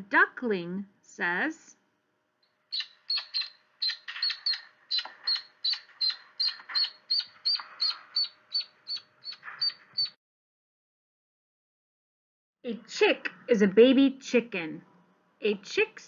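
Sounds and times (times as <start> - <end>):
duckling peeping: 2.7 - 10.2.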